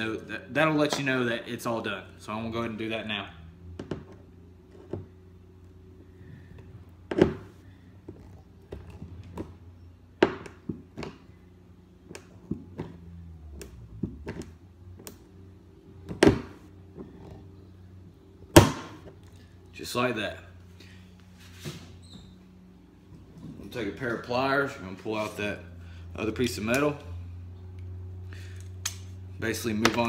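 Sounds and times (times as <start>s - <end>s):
faint steady hum: 0.0s - 30.0s.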